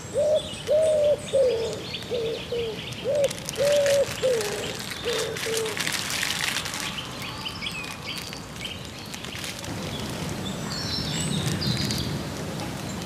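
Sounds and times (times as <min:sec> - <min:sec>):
small birds chirping: 0:00.0 - 0:06.0
crackling patter: 0:02.8 - 0:10.5, 0:11.2 - 0:13.0.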